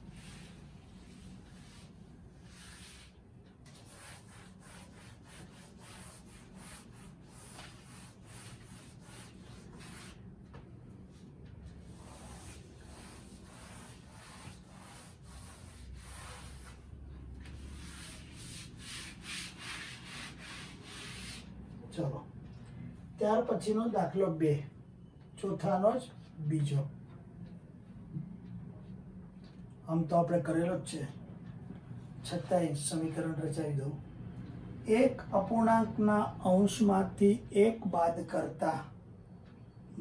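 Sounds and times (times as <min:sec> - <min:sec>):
duster rubbing a blackboard: 0:00.0 - 0:10.3, 0:11.7 - 0:16.9, 0:17.5 - 0:21.5.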